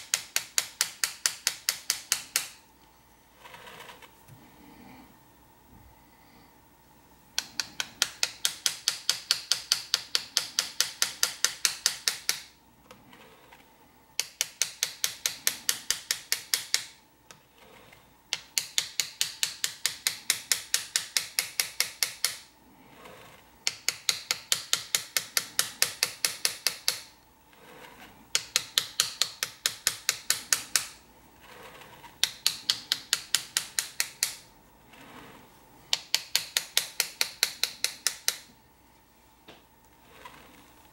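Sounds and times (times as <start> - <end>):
hammer tapping chisel on metal: 0.0 - 2.6, 7.4 - 12.5, 14.2 - 16.9, 18.3 - 22.4, 23.6 - 27.1, 28.3 - 30.9, 32.2 - 34.4, 35.9 - 38.5.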